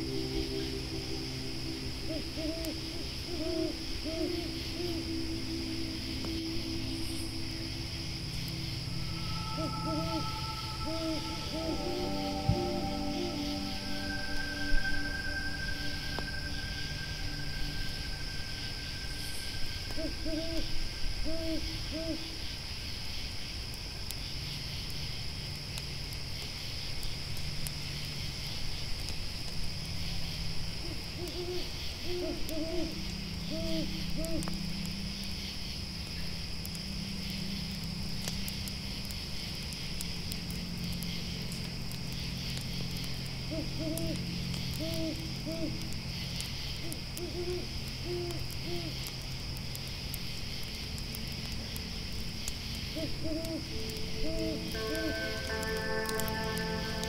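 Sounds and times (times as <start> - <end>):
low steady hum: 0.0 - 22.4
owl hooting: 0.0 - 22.4, 30.8 - 34.6, 43.5 - 45.8, 46.8 - 49.0, 53.0 - 57.0
campfire crackling: 0.0 - 57.0
grasshoppers chirping: 0.0 - 57.0.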